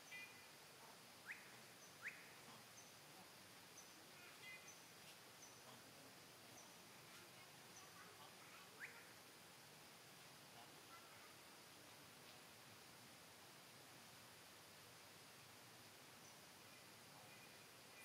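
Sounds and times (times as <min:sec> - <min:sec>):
faint bird chirps: 0:00.0 - 0:05.9, 0:06.5 - 0:09.2, 0:16.1 - 0:18.0.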